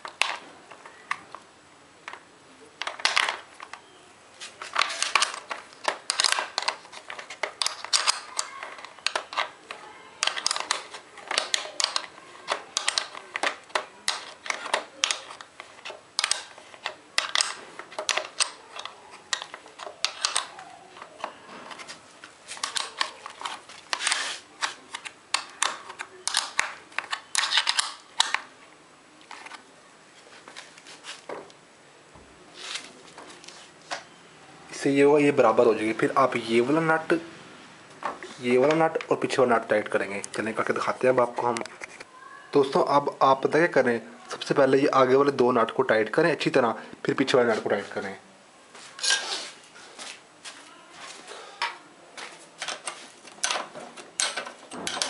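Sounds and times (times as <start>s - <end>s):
small clicks taps and rustles: 4.6s - 28.5s, 51.6s - 55.0s.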